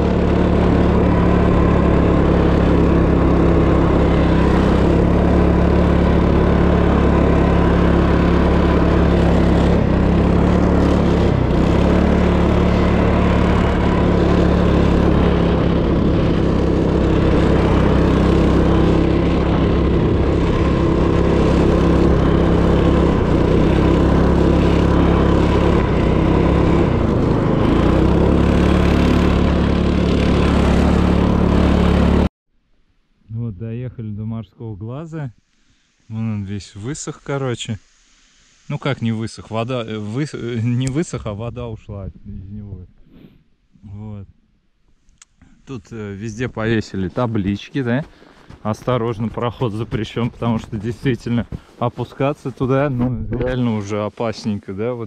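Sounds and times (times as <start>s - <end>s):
small petrol engine running: 0.0s - 32.3s.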